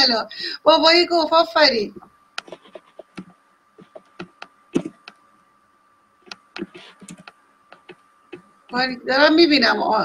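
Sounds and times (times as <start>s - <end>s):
computer keyboard clicks: 6.3s - 8.0s.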